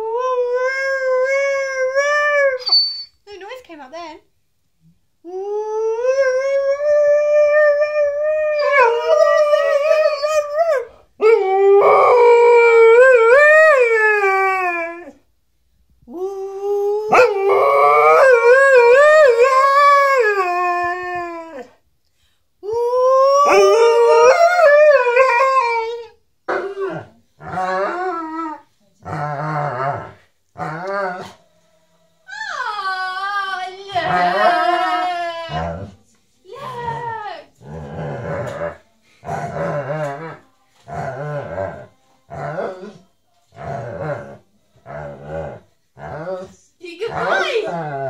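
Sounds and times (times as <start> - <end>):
dog howling: 5.7 - 15.2, 16.1 - 21.7, 22.7 - 28.6.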